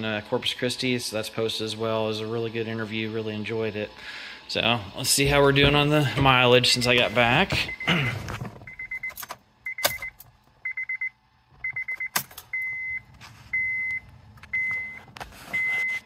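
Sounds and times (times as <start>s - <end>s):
car warning chime beeping: 6.8s - 8.0s, 8.7s - 16.0s.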